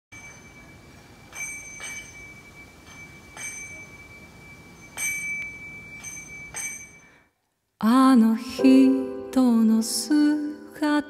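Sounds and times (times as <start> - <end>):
small bell ringing: 0.1 - 7.3.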